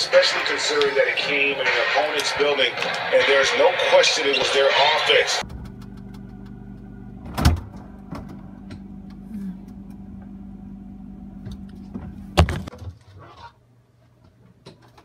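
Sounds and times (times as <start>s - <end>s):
low mechanical hum: 5.4s - 15.0s.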